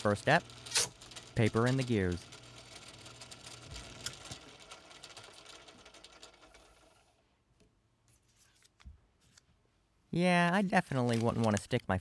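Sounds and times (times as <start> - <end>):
blower motor running: 0.0 - 7.0.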